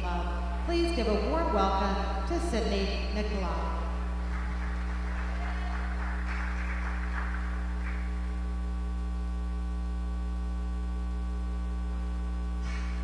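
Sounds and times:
electrical mains hum: 0:00.0 - 0:13.0
people clapping: 0:04.0 - 0:08.5, 0:12.6 - 0:13.0.

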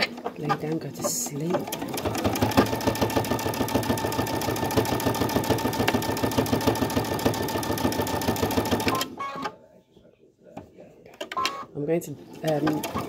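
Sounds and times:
sewing machine stitching: 0:01.1 - 0:09.2, 0:12.3 - 0:13.0.

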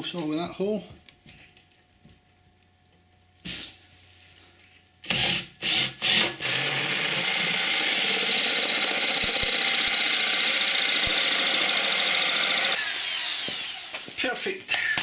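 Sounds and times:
drill with hole saw cutting wood: 0:05.0 - 0:14.1.

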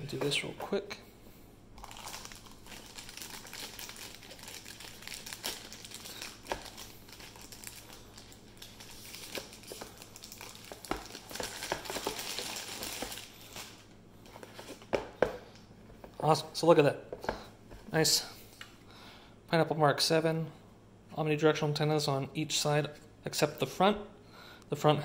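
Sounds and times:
plastic bag crinkling: 0:01.8 - 0:13.9.

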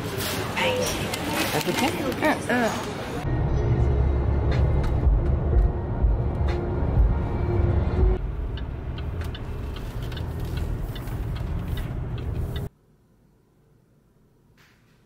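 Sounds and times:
car road noise rumble: 0:03.2 - 0:12.7.

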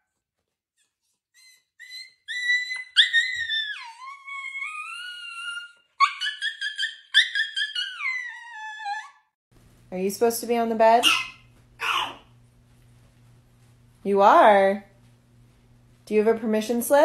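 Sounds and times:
dog howling and yowling: 0:01.8 - 0:09.3.

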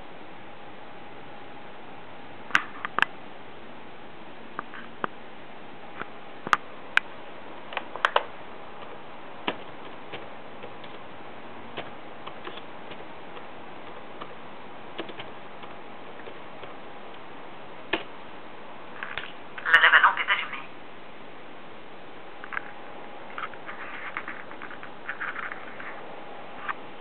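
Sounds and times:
laptop keyboard clicks: 0:15.0 - 0:16.4.

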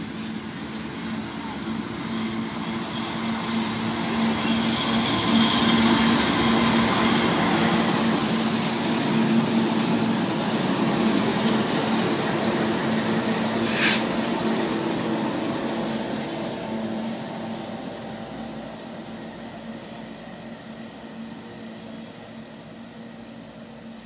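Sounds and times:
freight train passing: 0:00.0 - 0:24.0
short hiss: 0:13.6 - 0:14.2.

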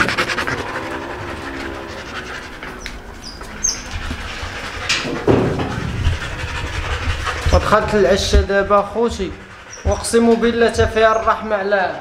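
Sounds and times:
dog panting: 0:00.0 - 0:12.0
knock: 0:05.0 - 0:06.2
low thump: 0:05.0 - 0:07.6.

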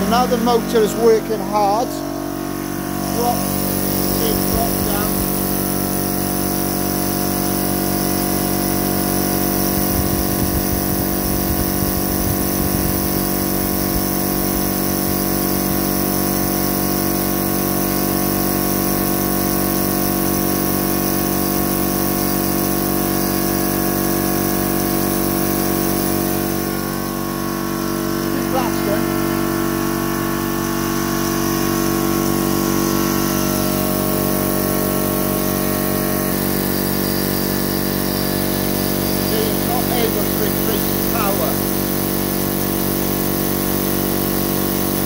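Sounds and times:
air compressor running: 0:00.0 - 0:45.0.

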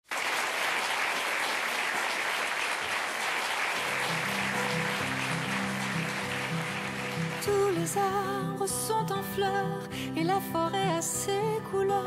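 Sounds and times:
studio audience applauding: 0:00.0 - 0:08.5.

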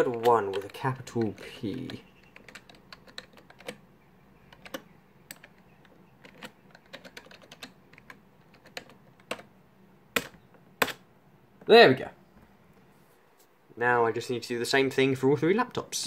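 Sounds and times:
computer keyboard typing: 0:00.0 - 0:09.5.

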